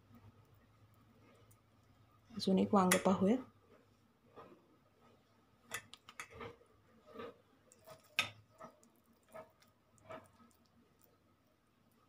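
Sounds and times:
soft rustling of filling: 0.0 - 12.0
light taps and clicks on steel bowl: 2.8 - 3.2.

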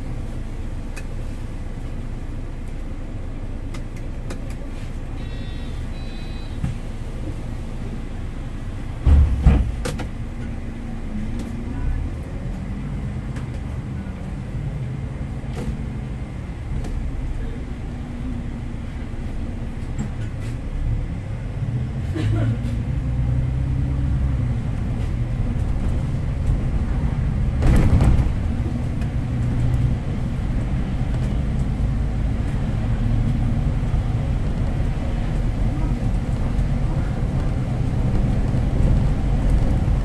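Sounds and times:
bus diesel engine running: 0.0 - 40.0
faint short beeping: 5.2 - 6.6
heavy thump: 9.0 - 9.8, 27.6 - 28.6.

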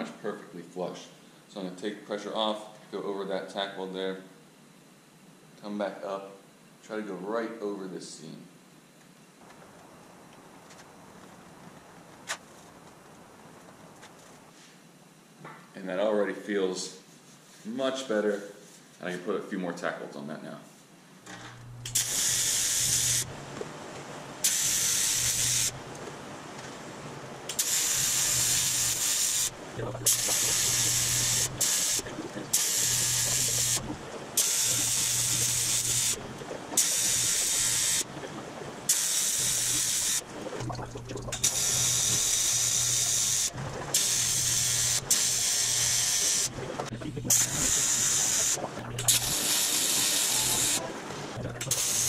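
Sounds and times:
welding arc hissing buzz: 21.3 - 23.6, 24.4 - 26.0, 27.4 - 52.0.

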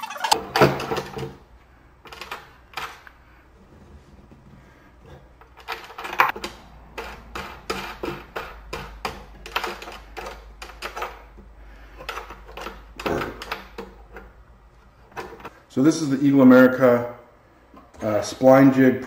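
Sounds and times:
hardware clicks and knocks: 0.3 - 1.4, 5.0 - 15.6.

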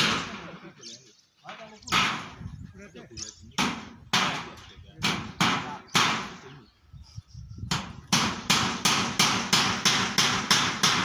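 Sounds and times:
hammer driving nails: 7.7 - 11.0.

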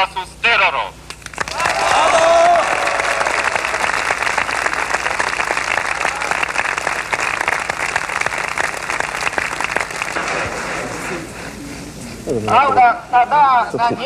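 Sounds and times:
crowd applauding: 1.1 - 11.6.

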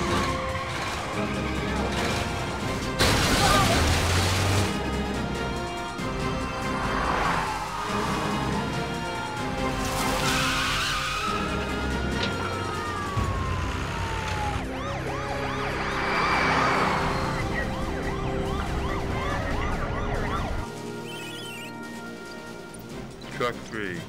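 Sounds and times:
police siren wailing and yelping: 6.6 - 21.7.

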